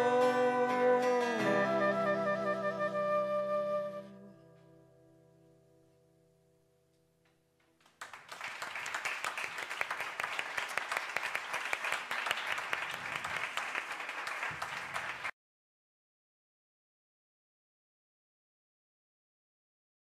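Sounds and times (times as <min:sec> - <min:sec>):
acoustic guitar chord ringing: 0:00.0 - 0:06.8
audience applause: 0:07.9 - 0:15.3.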